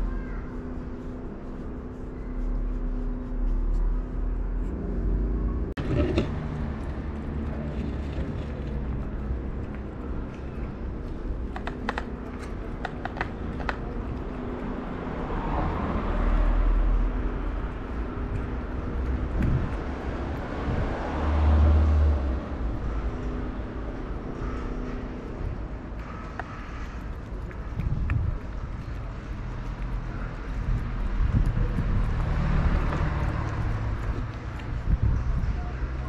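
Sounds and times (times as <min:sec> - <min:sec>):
low rumble of traffic: 0:00.0 - 0:36.0.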